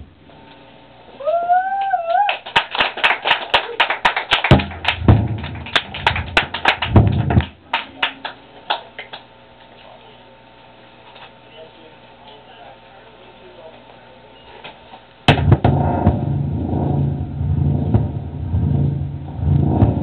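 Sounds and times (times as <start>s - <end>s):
sharp clicks and clap-like hits: 1.8s - 9.3s
low thuds: 4.5s - 7.6s, 15.3s - 20.0s.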